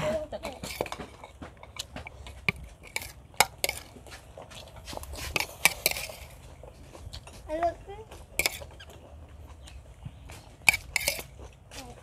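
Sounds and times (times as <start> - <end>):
utensils clinking against dishes: 0.0 - 4.0, 4.7 - 6.5, 8.3 - 9.0, 10.5 - 11.9.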